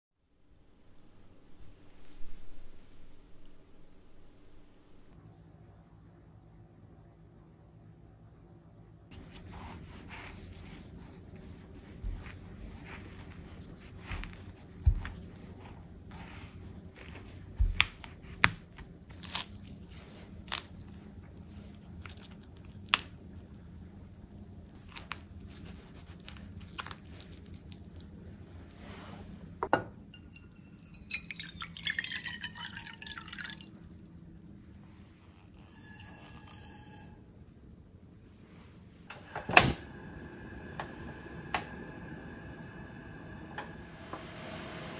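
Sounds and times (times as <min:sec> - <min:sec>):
high ringing drips: 0:30.1 - 0:34.1, 0:35.6 - 0:37.3.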